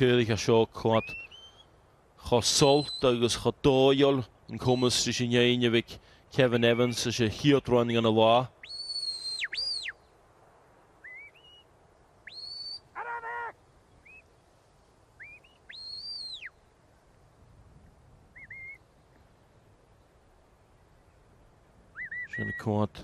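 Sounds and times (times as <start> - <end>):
short rising whistle chirps: 8.6 - 10.0, 11.0 - 12.9, 15.2 - 16.6, 18.4 - 18.8
long high whistles: 12.2 - 12.9.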